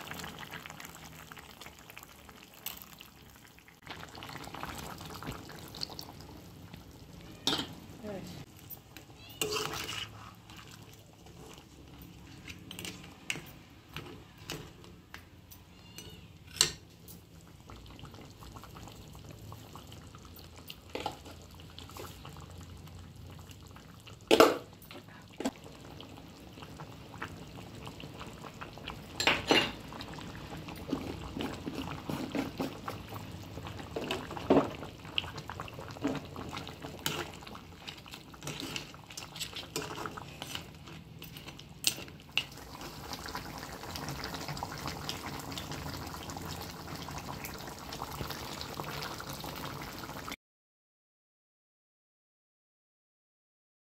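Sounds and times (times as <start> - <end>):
curry bubbling: 0.0 - 14.8, 16.9 - 50.3
steel spoon scraping a pan: 8.7 - 13.6, 37.0 - 42.1.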